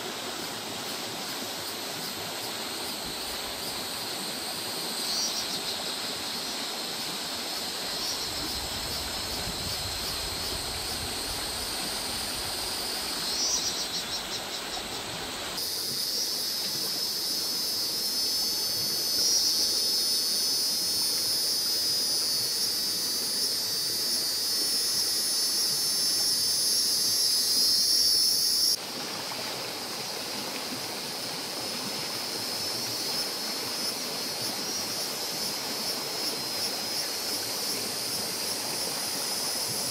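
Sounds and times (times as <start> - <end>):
flowing river water: 0.0 - 39.9
insect drone: 0.0 - 39.9.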